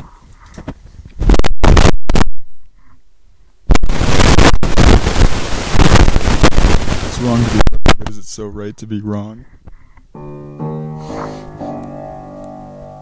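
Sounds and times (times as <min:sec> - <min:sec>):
distorted microphone noise blasts: 0:00.0 - 0:10.3.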